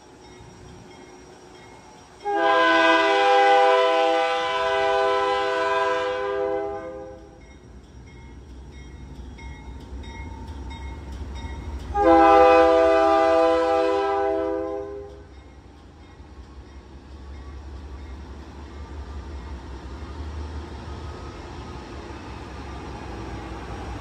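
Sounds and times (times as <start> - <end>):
locomotive air horn blasts: 2.2 - 7.4, 11.9 - 15.2.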